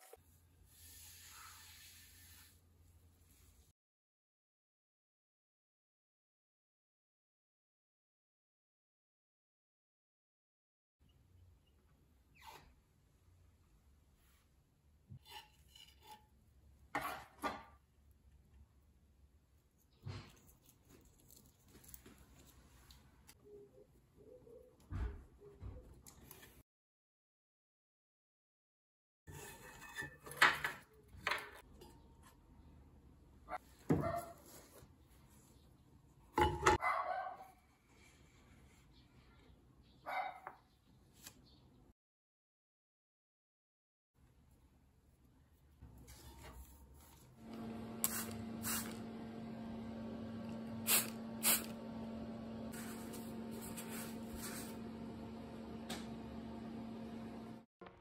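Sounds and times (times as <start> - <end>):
cloth wiping over board: 52.7 - 54.8.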